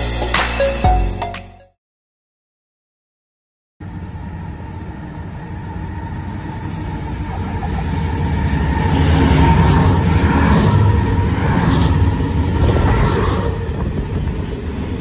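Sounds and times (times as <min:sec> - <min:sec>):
electric train rumbling: 0:03.8 - 0:15.0.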